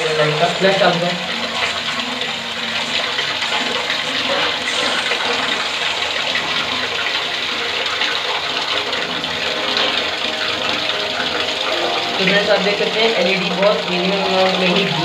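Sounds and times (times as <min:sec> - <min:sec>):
water splashing on spinning rotor: 0:00.0 - 0:15.0.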